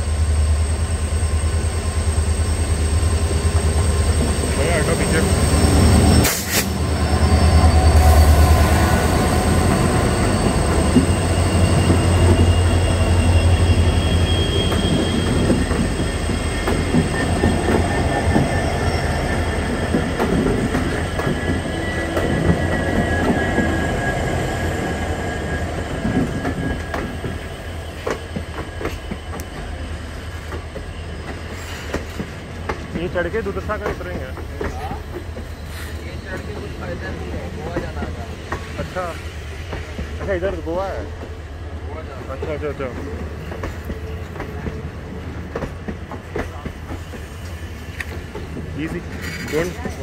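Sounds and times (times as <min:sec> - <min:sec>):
train wheels rumbling on track: 0:00.0 - 0:50.0
high wheel squeal: 0:00.4 - 0:32.5, 0:34.7 - 0:37.8.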